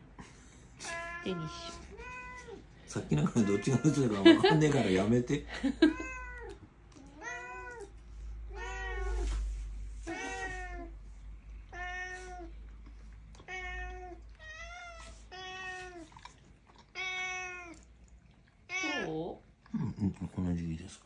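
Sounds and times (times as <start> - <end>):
cats meowing: 0.8 - 4.8, 5.8 - 11.0, 11.7 - 12.8, 13.4 - 17.9.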